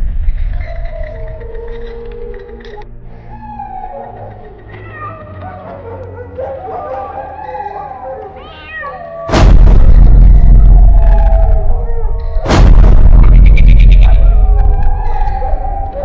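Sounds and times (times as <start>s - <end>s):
low drone: 0.0s - 4.8s, 9.3s - 16.0s
eerie cat-like meowing: 0.4s - 16.0s
loud blast sound effect: 9.3s - 15.3s.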